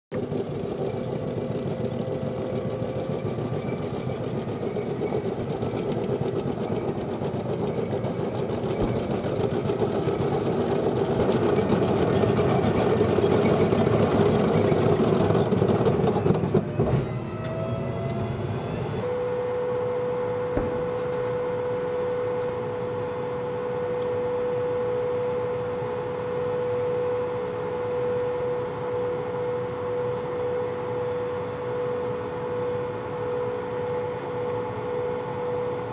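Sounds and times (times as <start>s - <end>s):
tank engine and tracks rumbling: 0.1s - 19.0s
constant held tone: 0.1s - 35.9s.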